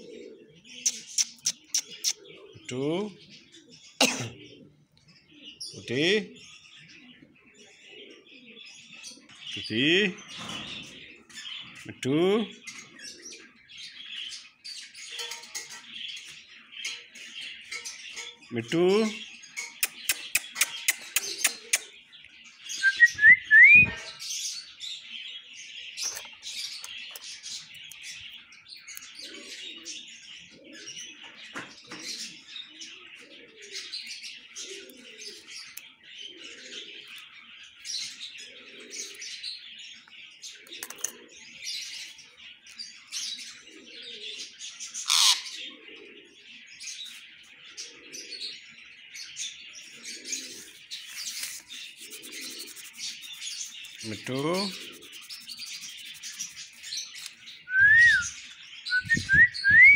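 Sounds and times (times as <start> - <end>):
parakeet chattering: 0.8 - 2.2, 51.4 - 56.8
parakeet squawk: 45.1 - 45.5.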